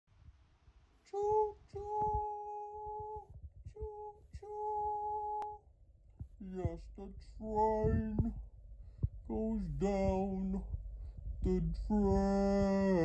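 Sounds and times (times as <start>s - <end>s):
person humming held notes: 1.1s - 5.6s, 6.4s - 8.4s, 11.4s - 13.0s
soft low knocks: 1.2s - 13.0s.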